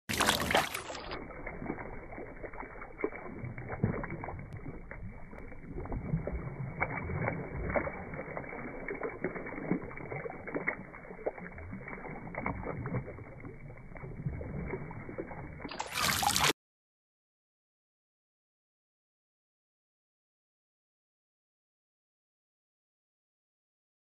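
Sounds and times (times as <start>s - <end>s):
water splashing in a pool: 0.0s - 16.6s.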